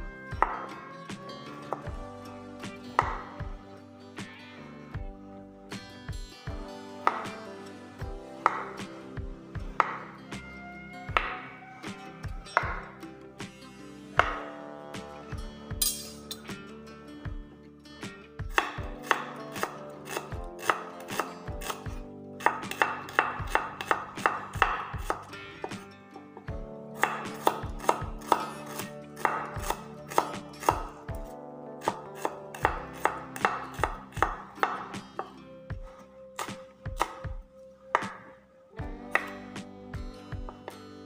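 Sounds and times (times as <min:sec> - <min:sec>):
knife tapping on wooden board: 0:12.6 - 0:12.8, 0:39.1 - 0:39.3.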